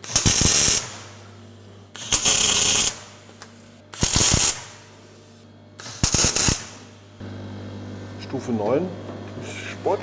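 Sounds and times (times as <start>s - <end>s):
welding crackle: 0.0s - 1.1s, 2.0s - 3.1s, 4.0s - 4.8s, 5.8s - 6.8s
welder humming: 0.0s - 10.0s.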